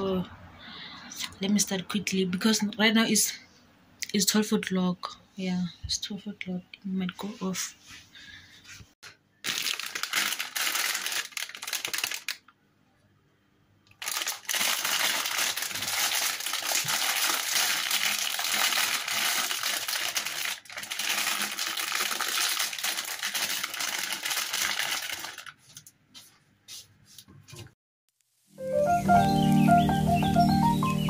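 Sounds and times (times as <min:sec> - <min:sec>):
plastic packet crinkling: 0:09.4 - 0:12.5, 0:13.9 - 0:25.9.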